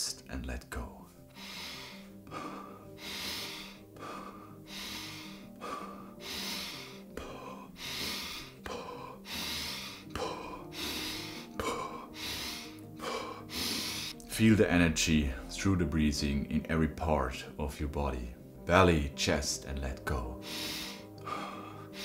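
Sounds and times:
soft background music: 0.0 - 22.0
man breathing fast and deep: 1.2 - 14.2, 20.4 - 22.0.

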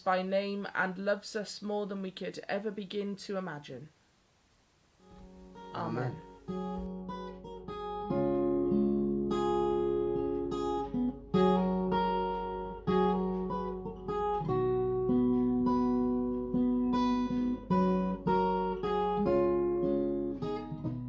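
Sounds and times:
acoustic guitar strumming chords: 5.0 - 21.0.

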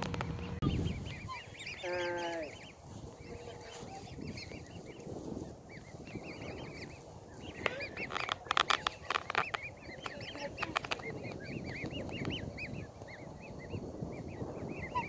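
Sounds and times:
cygnets peeping: 0.0 - 15.0
sharp clicks: 7.6 - 11.4.

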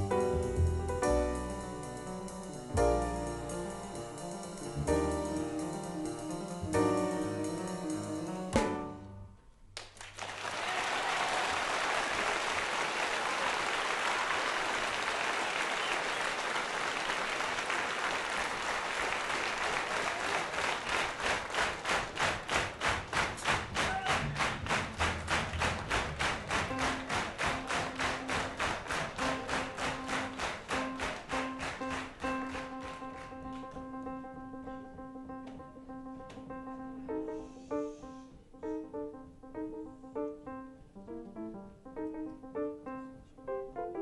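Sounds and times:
jazz piano trio playing: 0.0 - 9.4, 24.2 - 44.0
audience applauding: 9.8 - 33.8
rhythmic clapping in unison: 9.8 - 33.8.

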